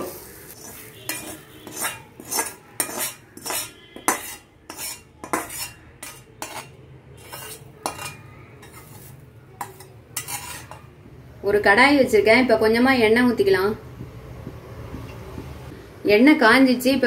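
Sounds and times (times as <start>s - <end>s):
metal spatula scraping metal pan: 0.0s - 11.0s.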